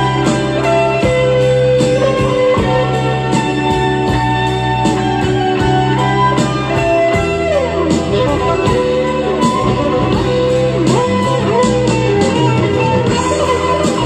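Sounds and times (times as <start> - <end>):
bass and drums: 0.0 - 14.0
electric guitar with bending notes: 0.0 - 14.0.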